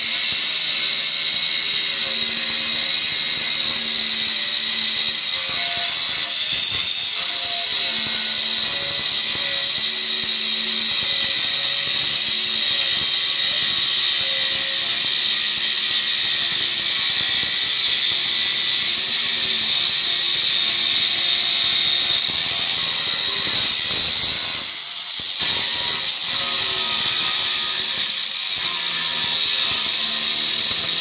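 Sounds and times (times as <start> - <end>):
electric stone cutter whining: 0.0 - 31.0.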